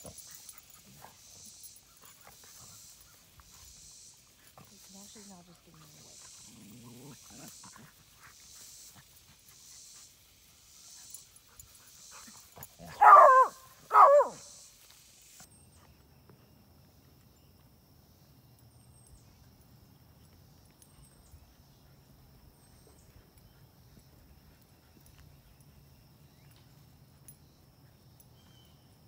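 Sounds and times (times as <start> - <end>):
dogs playing roughly: 0.0 - 13.5
faint outdoor background: 0.0 - 29.0
dog barking: 12.8 - 14.5.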